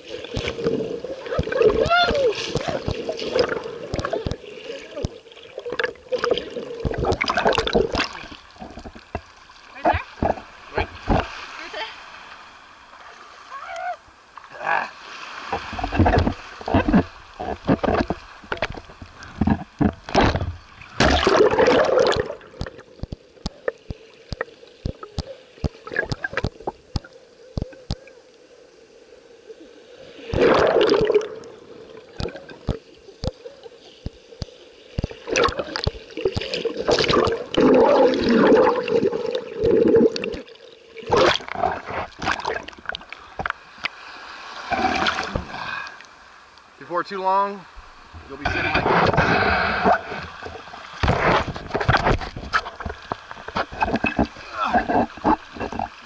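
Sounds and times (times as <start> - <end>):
muffled underwater gurgling: 0.0 - 11.3, 15.6 - 28.2, 30.3 - 34.2, 35.0 - 43.0, 48.2 - 56.0
sea water splashing: 0.0 - 28.4, 29.0 - 56.0.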